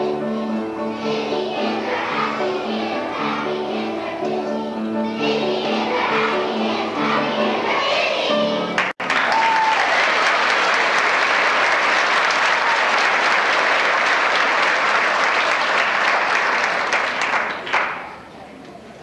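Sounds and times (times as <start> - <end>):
children's chorus singing: 0.0 - 8.9
audience applauding: 8.8 - 18.2.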